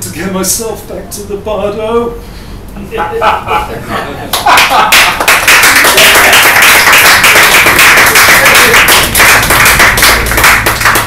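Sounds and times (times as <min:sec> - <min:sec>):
audience applauding: 0:04.3 - 0:11.0.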